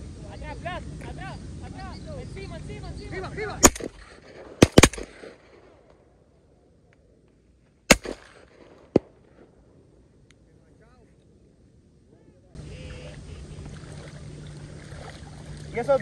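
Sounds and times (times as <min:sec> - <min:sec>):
shotgun blasts: 0:03.6 - 0:06.1, 0:07.9 - 0:09.6.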